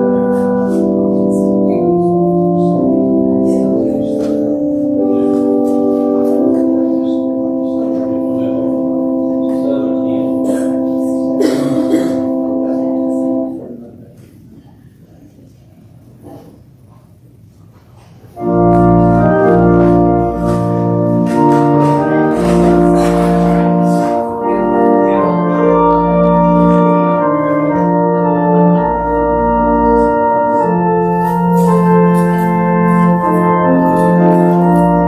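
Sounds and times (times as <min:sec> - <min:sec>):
church organ playing chords: 0:00.0 - 0:14.1, 0:18.4 - 0:35.0.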